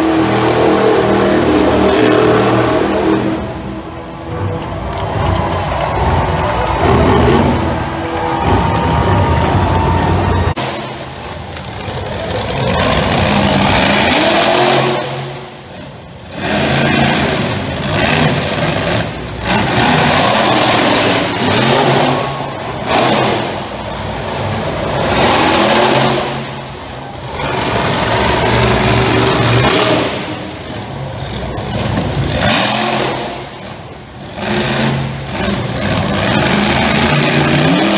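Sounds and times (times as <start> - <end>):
monster truck engine revving: 0.0 - 37.9.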